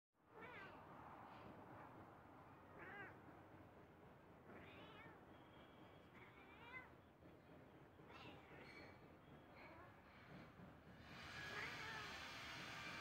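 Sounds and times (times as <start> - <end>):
cat meowing faintly: 0.3 - 3.3.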